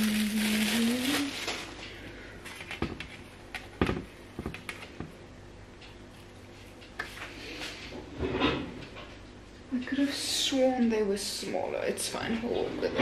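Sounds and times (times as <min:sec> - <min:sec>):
plastic wrapper crinkling: 0:00.0 - 0:02.8.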